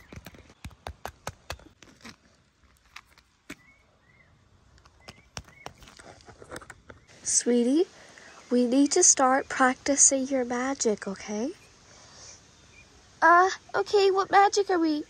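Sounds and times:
hoofbeats clip-clop: 0.0s - 3.6s, 4.9s - 6.8s
bird chirps: 3.5s - 6.0s.

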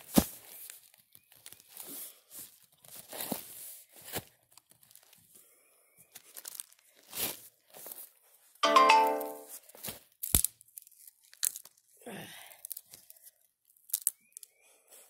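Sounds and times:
leaf litter and twigs crunching: 0.2s - 2.0s, 4.6s - 5.2s, 6.1s - 8.0s, 10.2s - 11.8s.

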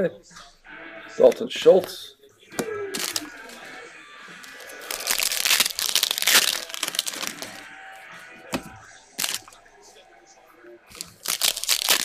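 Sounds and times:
foil wrapper tearing and crinkling: 2.9s - 3.6s, 4.4s - 7.7s, 9.2s - 9.5s, 10.9s - 12.0s.

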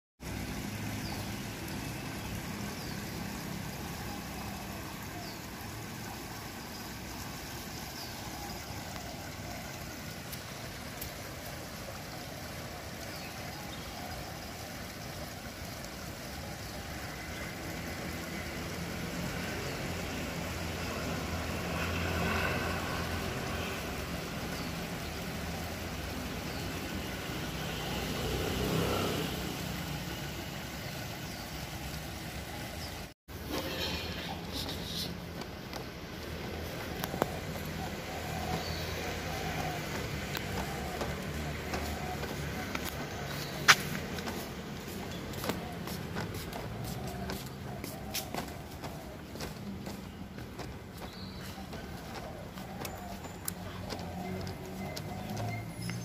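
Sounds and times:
water pouring into a river: 0.2s - 26.8s
passing motor traffic hum: 0.2s - 56.0s.

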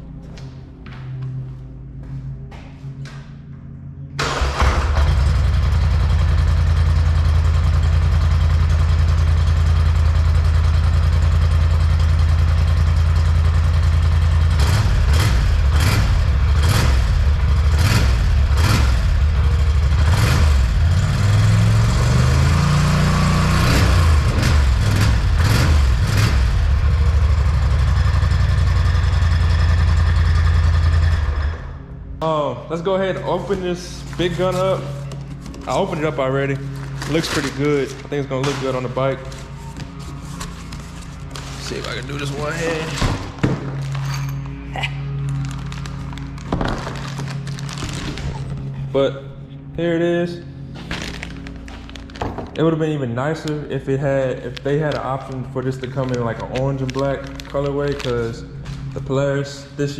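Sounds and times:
engine idling choppily: 4.2s - 31.8s
engine throttle revs: 14.4s - 31.8s.

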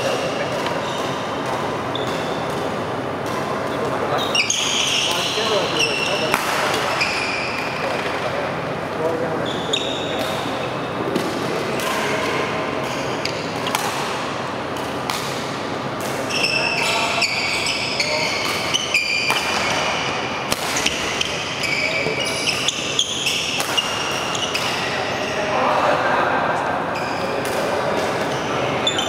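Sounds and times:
shoes squeaking on court: 0.0s - 1.2s, 1.8s - 2.5s, 9.4s - 10.5s, 16.2s - 20.2s, 20.8s - 25.4s, 28.3s - 29.0s
voices echoing in hall: 0.0s - 29.0s
racket striking shuttlecock: 6.2s - 7.0s, 10.1s - 16.3s, 18.4s - 21.4s, 22.6s - 24.9s.

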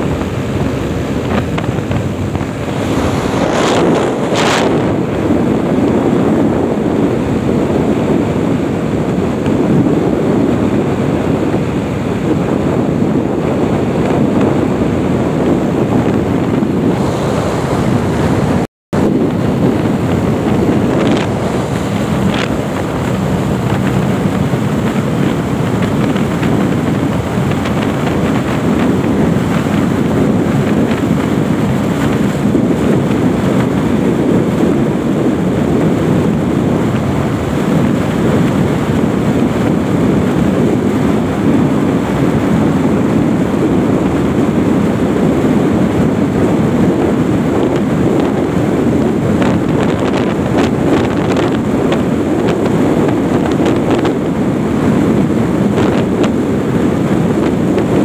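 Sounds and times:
motorcycle engine: 0.0s - 44.0s
road noise: 0.0s - 58.0s
wind buffeting microphone: 0.0s - 58.0s.

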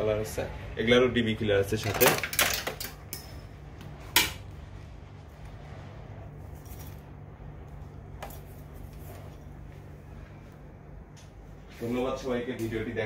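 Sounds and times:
low steady hum: 0.0s - 13.0s
metal parts clacking: 1.8s - 3.3s.

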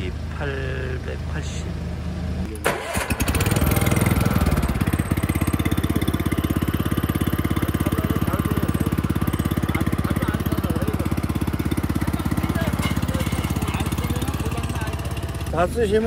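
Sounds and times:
cultivator engine chugging idle: 2.7s - 16.0s.

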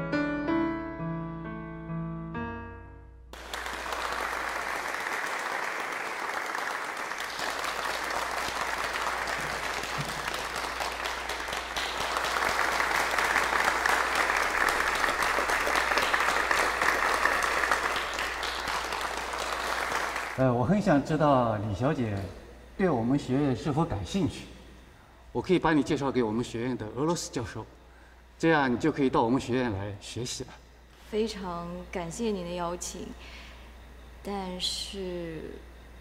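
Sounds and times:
piano chord: 0.0s - 3.4s
audience applause: 3.4s - 20.6s.

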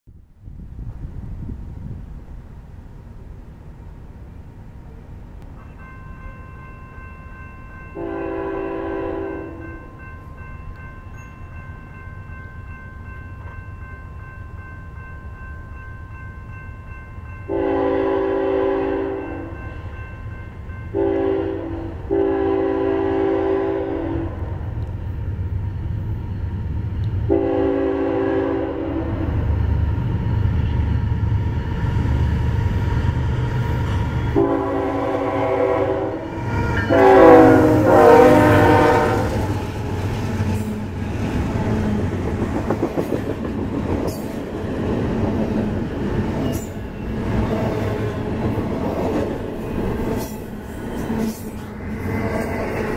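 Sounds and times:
train rumble: 0.1s - 52.9s
locomotive horn blasts: 8.0s - 9.8s, 17.5s - 19.6s, 20.9s - 24.4s, 27.3s - 29.2s, 34.3s - 39.5s.

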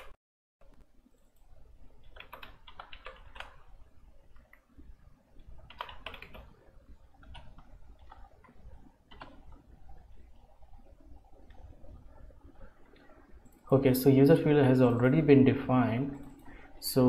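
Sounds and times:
computer keyboard typing: 0.0s - 4.7s, 5.4s - 13.7s.

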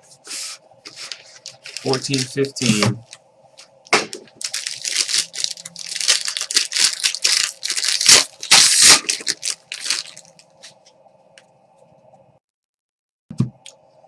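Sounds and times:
foil wrapper crinkling: 0.9s - 3.2s, 4.0s - 10.8s.

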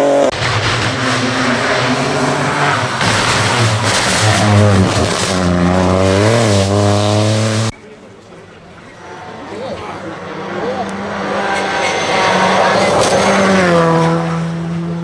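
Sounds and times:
rally car engine revving: 0.0s - 7.9s, 8.8s - 15.0s
gravel hissing from tyres: 0.4s - 6.9s.

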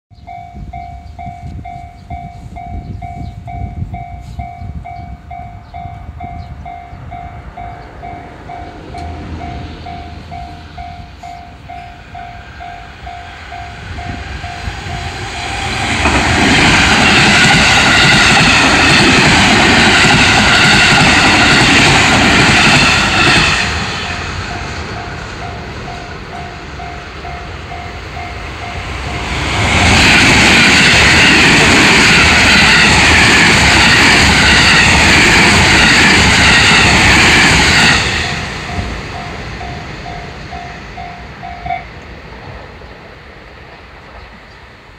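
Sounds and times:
level crossing warning bell: 0.2s - 15.2s, 24.5s - 29.4s, 38.2s - 42.0s
electric train passing: 0.2s - 44.9s.

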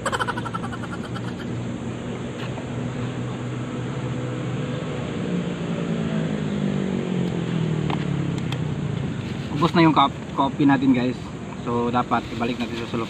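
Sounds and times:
passing vehicle engine: 0.0s - 13.0s
traffic hiss: 7.0s - 13.0s.

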